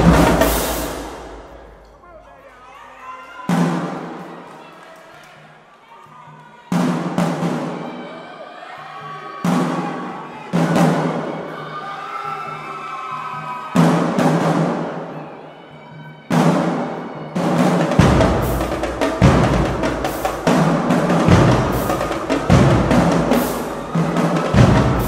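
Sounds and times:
marching drumline: 0:00.0 - 0:01.9, 0:03.5 - 0:04.4, 0:06.7 - 0:07.9, 0:13.8 - 0:15.0, 0:16.3 - 0:25.0.

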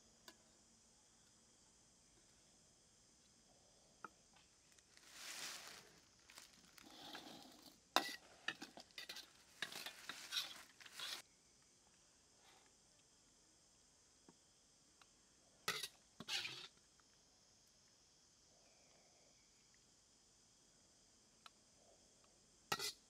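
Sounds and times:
food sizzling: 0:04.9 - 0:11.2
metal ladle scraping in a wok: 0:07.0 - 0:11.2.

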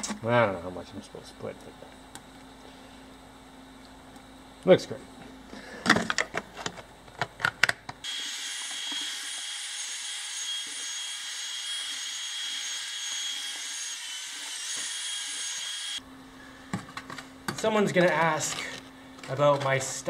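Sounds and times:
electric drill mixing mortar: 0:08.0 - 0:16.0.

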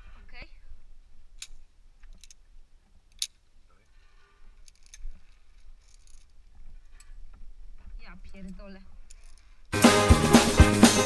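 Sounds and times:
harness hardware clinking on steel cables: 0:01.3 - 0:09.7.

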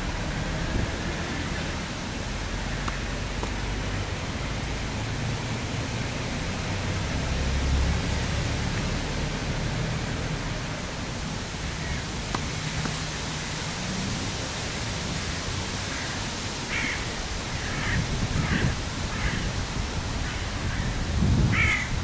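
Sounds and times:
wind noise on microphone: 0:00.0 - 0:22.0
tennis racket hitting ball: 0:02.8 - 0:03.6, 0:12.2 - 0:13.1.

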